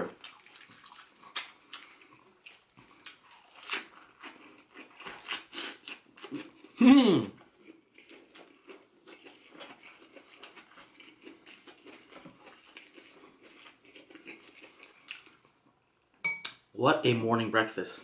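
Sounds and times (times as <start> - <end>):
person chewing: 0.0 - 15.6.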